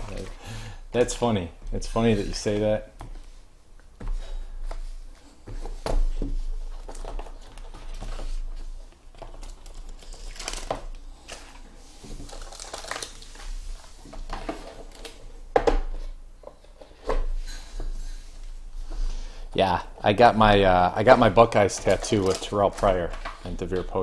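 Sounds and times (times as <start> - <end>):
foil wrappers crinkling and tearing: 6.8 - 15.2, 21.0 - 24.0.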